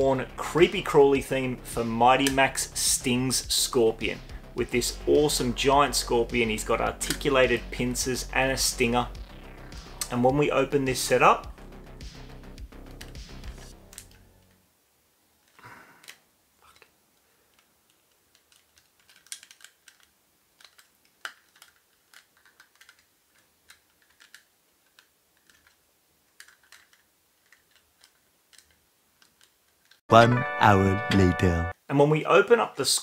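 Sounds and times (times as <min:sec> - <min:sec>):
small plastic clicks and taps: 0:17.5 - 0:25.8, 0:26.4 - 0:30.0.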